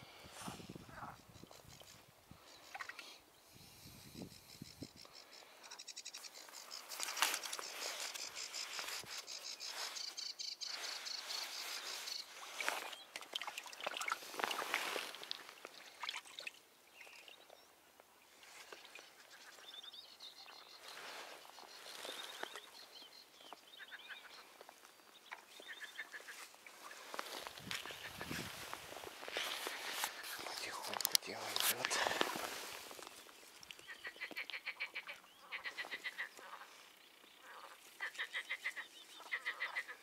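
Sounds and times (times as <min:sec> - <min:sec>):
fishing tackle rustling in reeds: 0:06.0 - 0:16.4, 0:20.7 - 0:23.0, 0:26.0 - 0:33.8.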